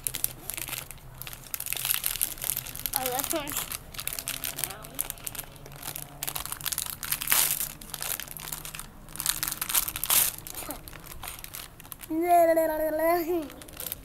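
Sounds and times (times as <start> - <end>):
tissue paper crinkling: 0.0 - 14.0.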